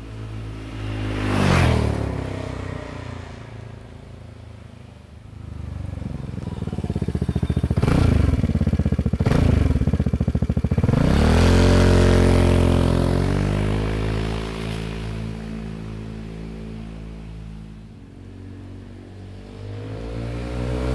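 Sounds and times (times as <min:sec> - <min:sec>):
scooter engine passing by: 0:00.2 - 0:20.9.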